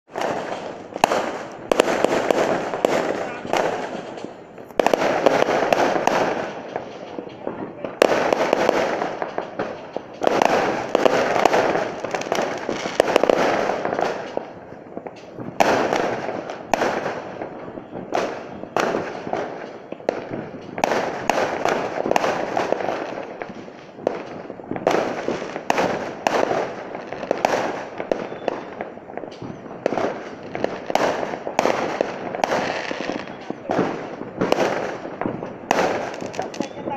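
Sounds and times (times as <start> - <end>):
fireworks bangs: 0.1 - 36.9
fireworks crackle: 0.1 - 36.9.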